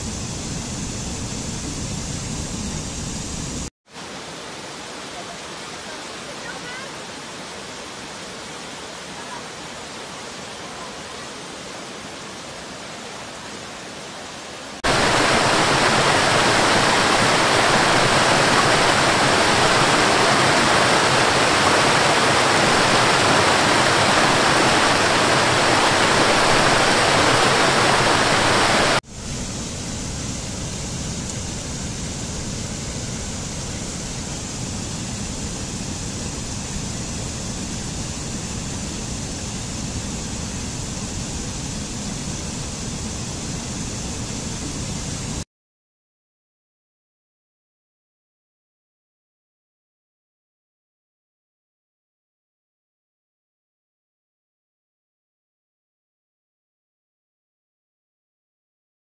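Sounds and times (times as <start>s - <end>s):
waterfall rushing: 4.0s - 29.0s.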